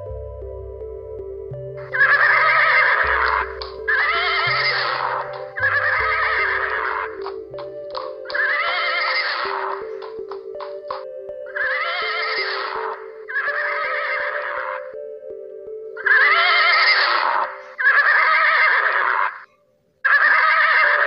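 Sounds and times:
soft ambient music: 0.0 - 21.0
horse whinnying: 1.9 - 7.3, 8.3 - 9.8, 11.5 - 14.9, 16.0 - 21.0.

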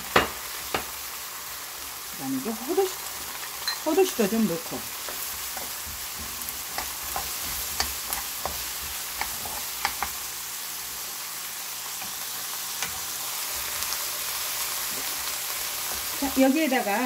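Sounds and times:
food sizzling in oil: 0.0 - 17.0
spatula scraping a pan: 4.4 - 10.3.

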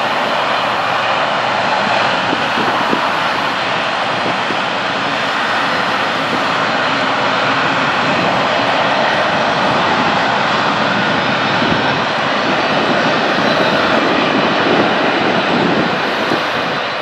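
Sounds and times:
jet aircraft engines running: 0.0 - 17.0.

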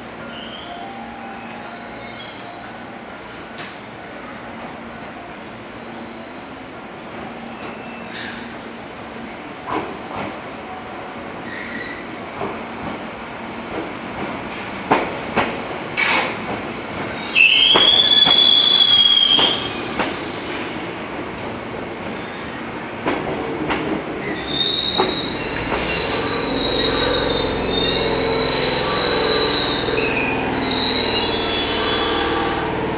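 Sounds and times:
train wheels squealing on rails: 0.2 - 3.8, 7.3 - 9.4, 11.4 - 12.2, 15.8 - 20.9, 22.1 - 22.8, 24.1 - 32.9.

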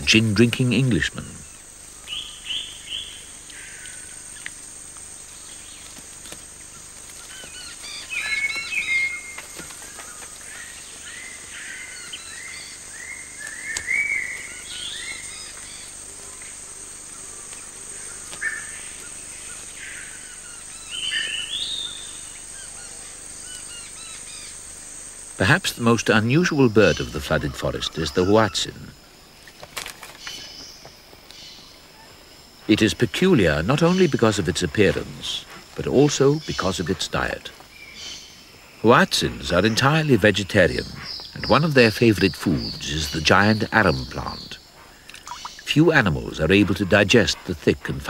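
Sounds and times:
steady high hiss: 0.0 - 48.0.

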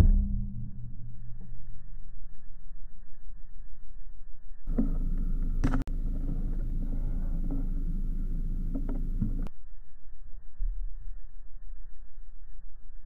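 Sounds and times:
sharp crack: 4.7 - 9.4
wind rumble on microphone: 4.7 - 9.5.

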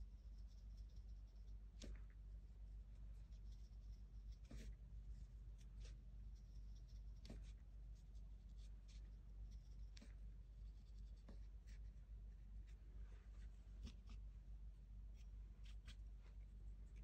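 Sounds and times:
steady low hum: 0.0 - 17.0
paintbrush strokes and taps: 5.5 - 14.3.

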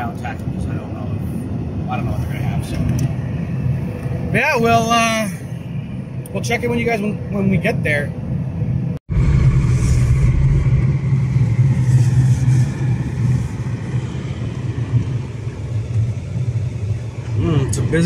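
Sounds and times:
engine and road hum: 0.0 - 18.0.

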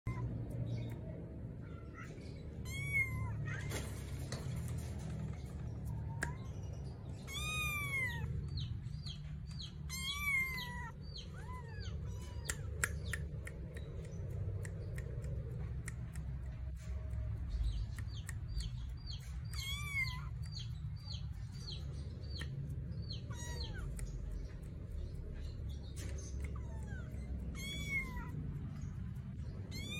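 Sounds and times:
kittens meowing: 0.0 - 4.6, 5.7 - 15.4, 17.8 - 29.9.

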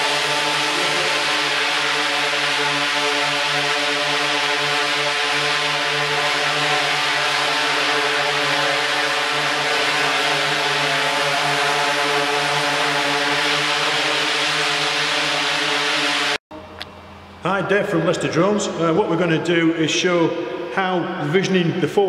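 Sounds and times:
propeller wash hiss: 0.0 - 16.4
drone motors buzzing: 0.0 - 16.9.

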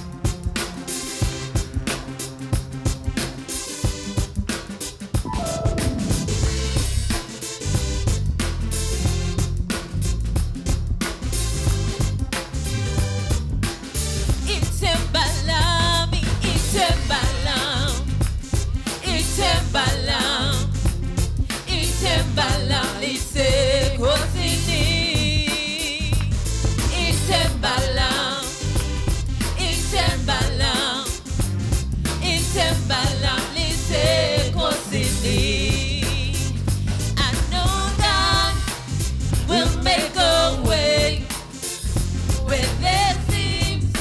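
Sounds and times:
drum kit: 0.0 - 44.0
gospel band with electric keyboard: 5.3 - 6.8
heavy bass line: 5.3 - 7.2, 32.8 - 41.3
woman singing with vibrato: 39.5 - 41.3.

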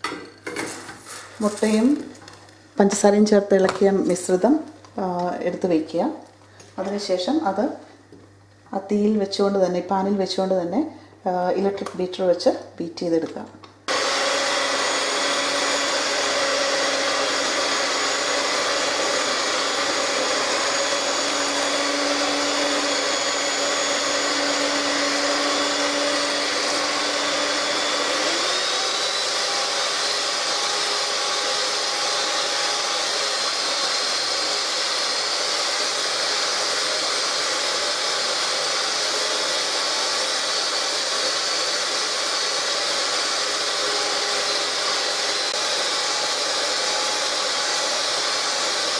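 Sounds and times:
electric hand mixer whisking: 13.9 - 48.9.

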